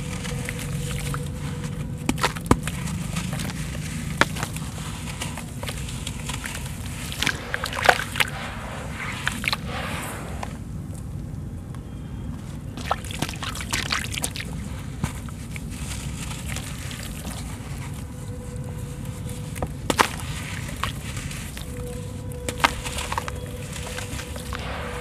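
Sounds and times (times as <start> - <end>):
water sloshing and trickling: 0.0 - 11.2, 12.4 - 25.0
steady low rumble: 0.0 - 25.0
pieces splashing into water: 7.0 - 8.4, 12.8 - 14.6.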